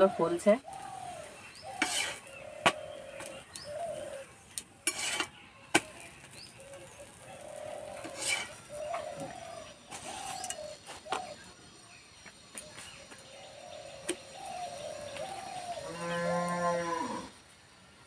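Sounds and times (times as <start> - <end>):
doves cooing: 0.0 - 5.2, 5.8 - 11.6, 12.6 - 17.4
scraping on pan: 1.6 - 3.4, 4.8 - 6.2, 6.8 - 9.2.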